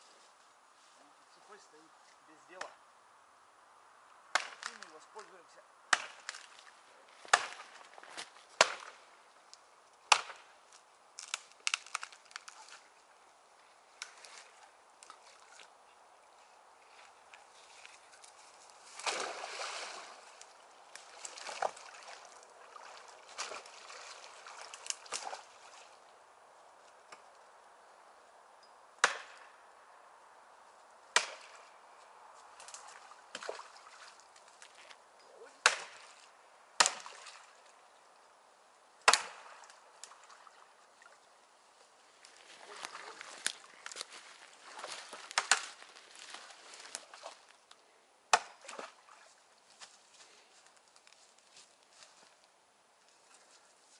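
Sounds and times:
axe chopping tree: 4.3s - 4.9s, 5.9s - 6.5s, 7.2s - 9.0s, 10.1s - 10.5s, 29.0s - 29.6s, 31.1s - 31.6s, 35.6s - 36.1s, 36.8s - 37.2s, 39.0s - 39.6s, 45.2s - 45.8s, 48.3s - 48.9s.

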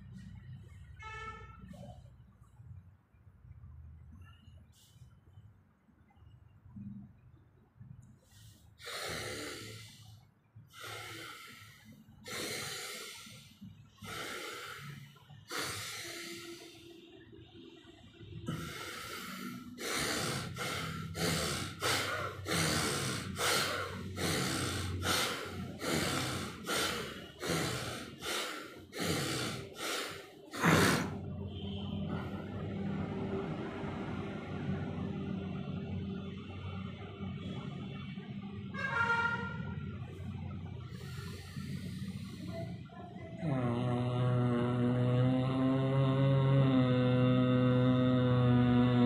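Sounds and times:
man breathing forcefully through nose: 8.2s - 17.0s, 18.4s - 31.2s, 40.8s - 42.8s.

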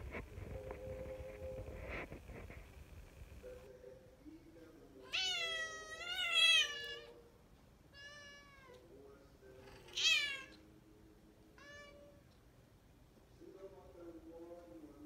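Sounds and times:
cat yowling: 5.1s - 7.2s, 7.9s - 8.8s, 9.9s - 10.6s, 11.6s - 12.2s.

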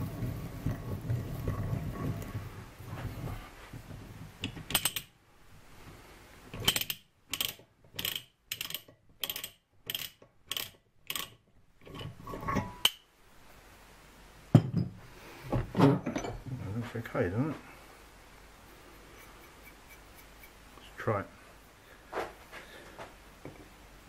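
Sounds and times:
ratcheting die stock clicking: 6.6s - 11.4s
metal clunk: 14.6s - 16.5s.

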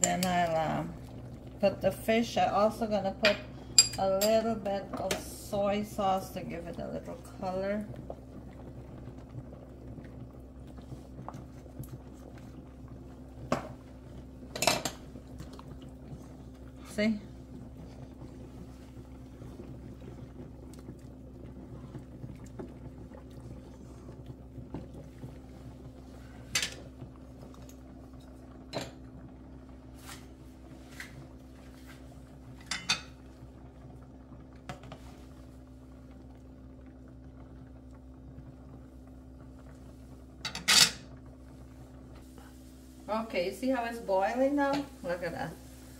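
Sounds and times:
low hum of boiling pot: 0.0s - 45.9s
metal utensils clinking on pot: 3.3s - 4.5s.

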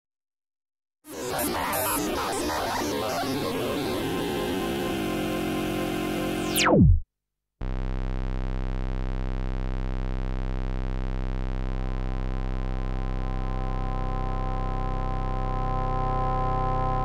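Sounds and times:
electronic intro music: 1.2s - 7.0s
downward pitch sweep: 1.5s - 7.0s
low synthesizer drone: 2.5s - 7.0s, 7.6s - 17.0s.

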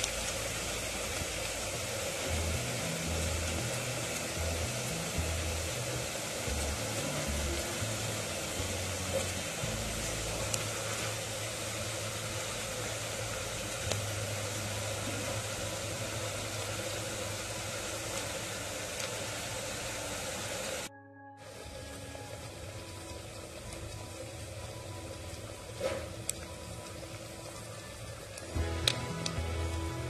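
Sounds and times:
vegetables sizzling in oil: 0.0s - 20.9s.

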